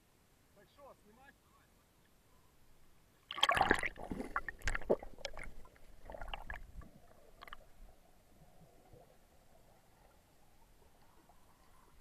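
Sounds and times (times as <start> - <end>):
water bubbling: 3.3 - 12.0
water splashing and gurgling: 3.3 - 12.0.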